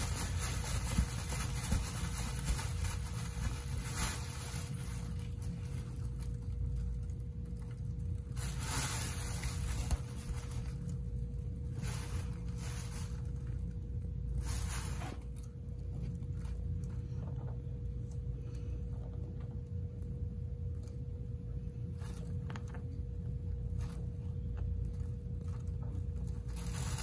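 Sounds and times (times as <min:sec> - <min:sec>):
steady low hum: 0:00.0 - 0:27.0
fabric tunnel rustling and scraping: 0:08.3 - 0:11.0, 0:26.4 - 0:27.0.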